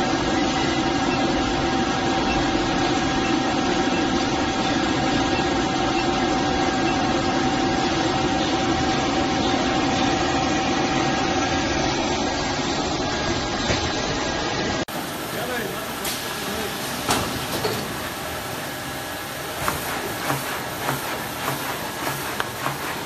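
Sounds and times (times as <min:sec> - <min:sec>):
thin steady whine: 0:00.0 - 0:16.7.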